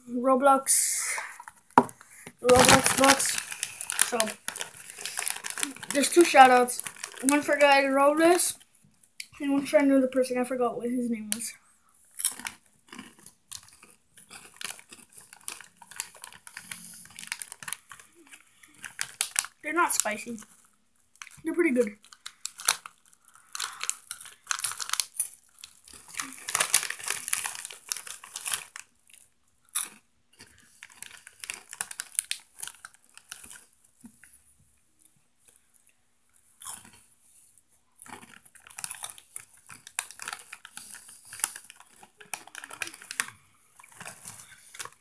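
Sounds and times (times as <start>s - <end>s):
crunchy snack chewing: 2.5s - 7.4s, 12.1s - 19.6s, 22.0s - 33.8s, 35.0s - 37.1s, 38.0s - 45.0s.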